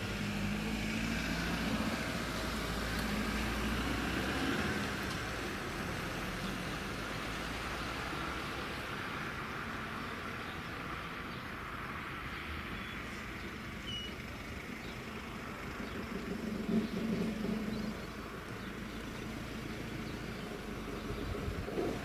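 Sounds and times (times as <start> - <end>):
distant diesel train engine hum: 10.1 - 22.0.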